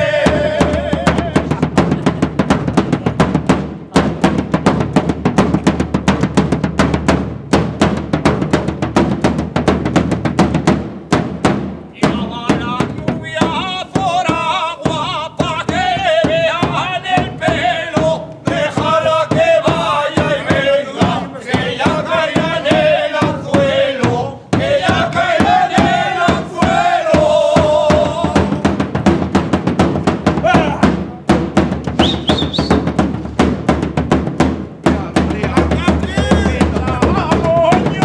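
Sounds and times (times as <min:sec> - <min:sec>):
men singing together: 0:00.0 - 0:02.4, 0:12.0 - 0:28.9, 0:35.4 - 0:38.0
bass drum beating: 0:00.0 - 0:38.0.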